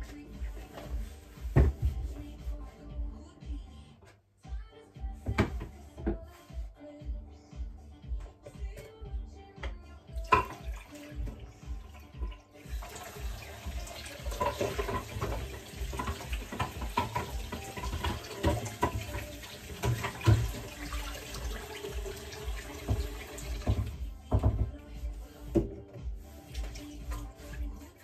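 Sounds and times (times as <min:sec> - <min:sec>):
tap running into sink: 0:09.6 - 0:11.5, 0:12.2 - 0:24.7.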